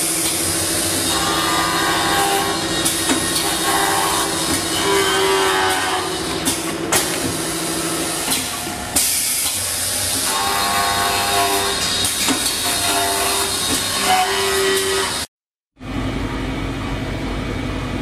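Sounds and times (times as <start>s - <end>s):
pitched machine whine: 0.0s - 18.0s.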